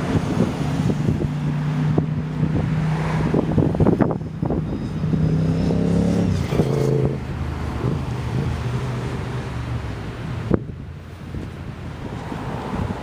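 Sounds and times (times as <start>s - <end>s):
vehicle engine accelerating past: 1.4s - 9.7s.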